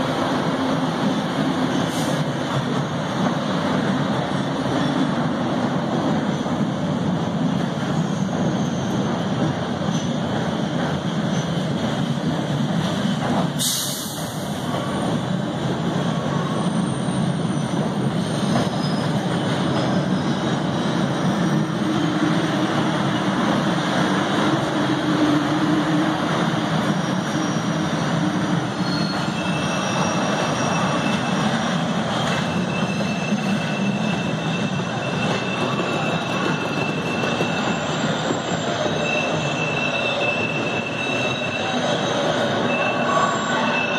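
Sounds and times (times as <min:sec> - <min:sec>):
subway train rumbling: 0:00.0 - 0:43.9
high-pitched wheel squeal: 0:16.5 - 0:21.8, 0:26.8 - 0:43.9.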